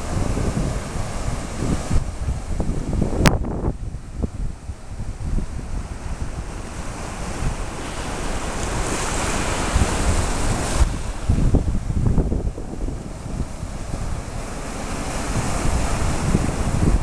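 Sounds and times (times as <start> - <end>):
surf washing against rocks: 0.0 - 17.0
wind buffeting microphone: 0.0 - 17.0.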